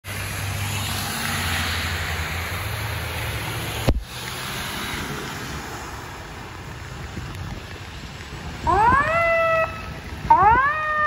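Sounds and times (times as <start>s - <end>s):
heavy rain hissing: 0.1s - 8.6s
fire engine rumbling: 0.1s - 11.0s.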